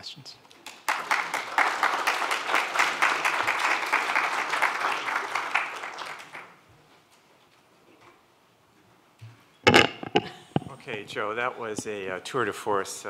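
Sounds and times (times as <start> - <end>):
audience applauding: 0.6 - 6.6.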